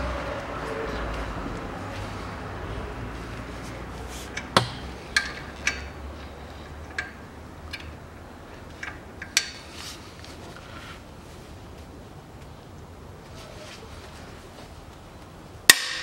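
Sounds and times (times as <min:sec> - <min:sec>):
metallic clinks of wrenches: 0:04.3 - 0:08.0.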